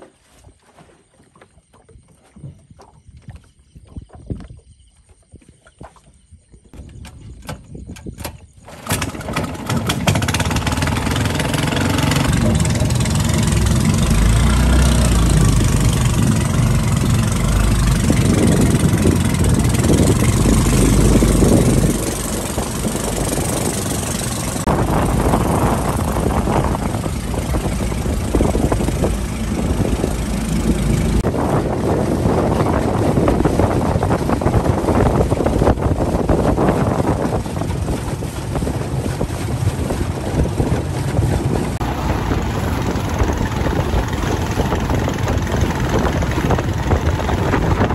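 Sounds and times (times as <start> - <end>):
boat motor running: 8.6 - 47.9.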